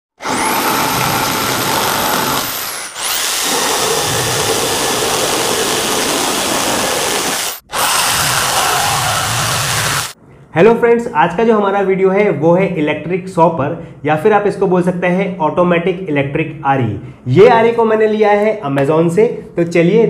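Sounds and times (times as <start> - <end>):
electric drill motor whining: 0.2 - 10.2
saw blade rasping through wood: 0.2 - 10.2.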